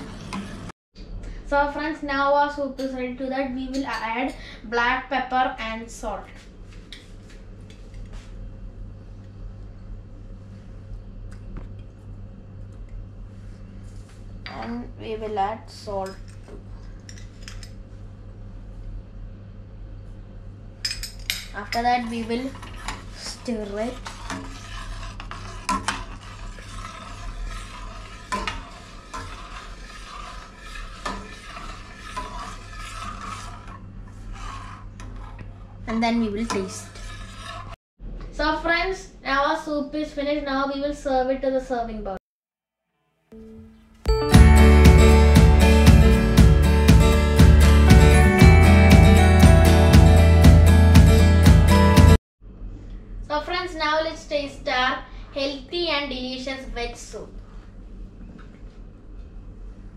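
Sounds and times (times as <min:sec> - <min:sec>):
ladle scraping metal pot: 0:22.0 - 0:37.8.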